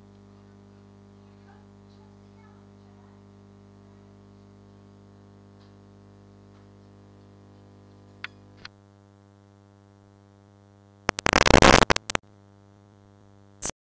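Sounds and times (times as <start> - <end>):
electrical hum: 3.2 - 13.7
bursts of static hiss: 11.0 - 12.2
small clicks: 11.1 - 12.2.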